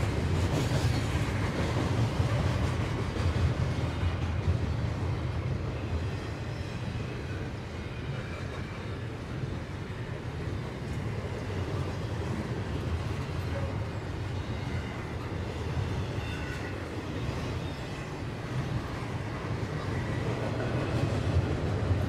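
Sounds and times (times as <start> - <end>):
train wheels rumbling on rail: 0.0 - 22.0.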